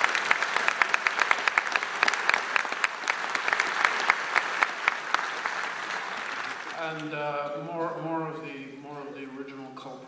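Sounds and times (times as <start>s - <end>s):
close hand claps: 0.0s - 7.2s
audience applauding: 0.0s - 7.4s.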